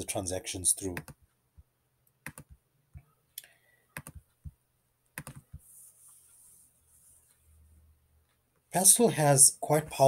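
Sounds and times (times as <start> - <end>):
mouse and keyboard clicks: 2.2 - 3.1, 3.9 - 4.3, 5.2 - 5.6.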